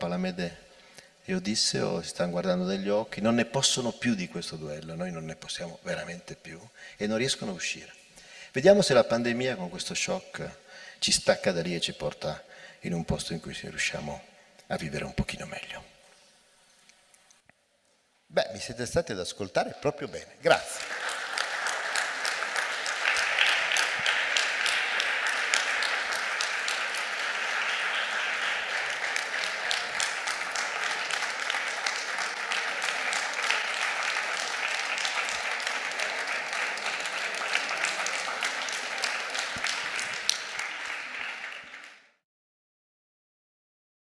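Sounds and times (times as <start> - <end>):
audience applauding: 20.6 - 42.2.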